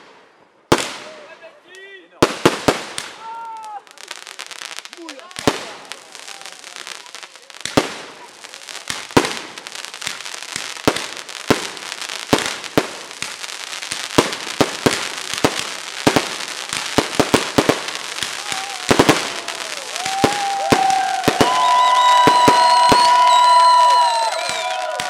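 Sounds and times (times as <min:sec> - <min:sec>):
hissing crackle of fireworks: 0:02.2 - 0:25.0
fireworks shells bursting with bangs: 0:07.4 - 0:25.0.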